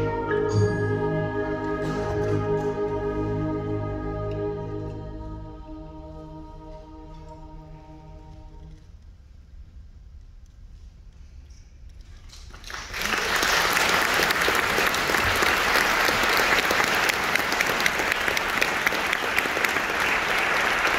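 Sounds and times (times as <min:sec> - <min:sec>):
audience applauding: 0:12.4 - 0:20.9.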